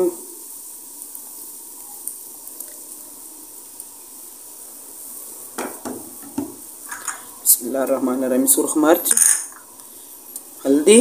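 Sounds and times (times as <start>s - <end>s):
kitchenware clinking: 5.6s - 7.3s, 9.0s - 9.6s.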